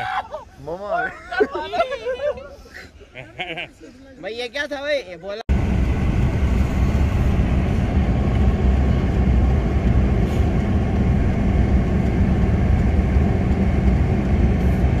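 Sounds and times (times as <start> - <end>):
car engine and tyre noise: 5.5 - 15.0.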